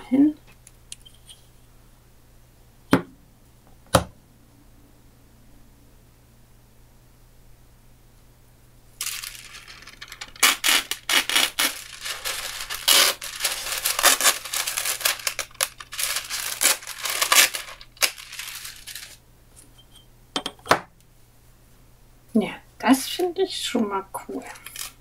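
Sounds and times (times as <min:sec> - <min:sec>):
paper rustling and crinkling: 0:09.0 - 0:19.2.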